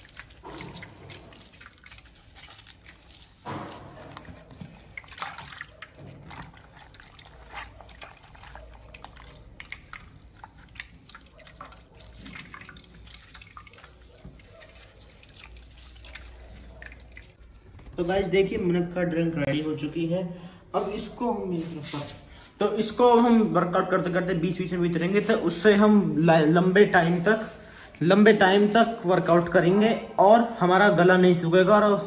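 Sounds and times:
liquid dripping into bowl: 0:00.0 - 0:17.4.

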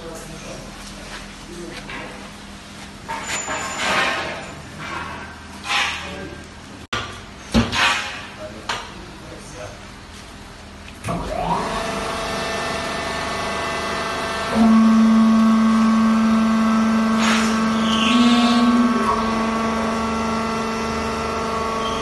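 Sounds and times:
hydraulic pump motor whining: 0:11.1 - 0:22.0
loud low drone: 0:11.6 - 0:22.0.

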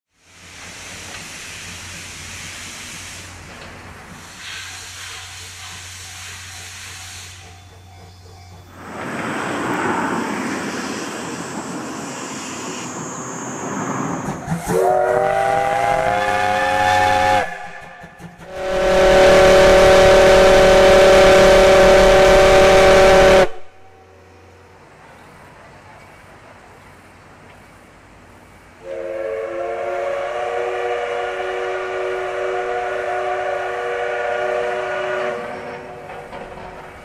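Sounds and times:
steam hissing: 0:00.1 - 0:23.8, 0:25.2 - 0:37.0
steam whistle blasts: 0:14.5 - 0:24.1, 0:28.8 - 0:36.0.

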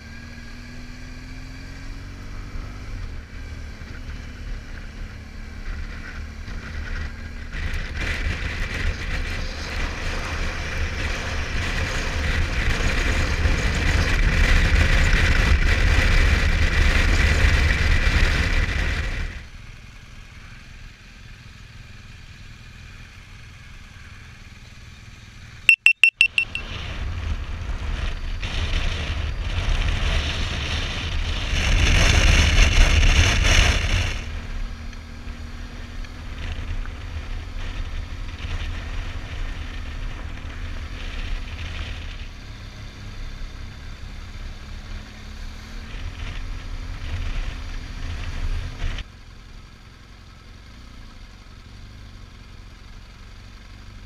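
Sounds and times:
short high-pitched beeps: 0:25.7 - 0:26.6.

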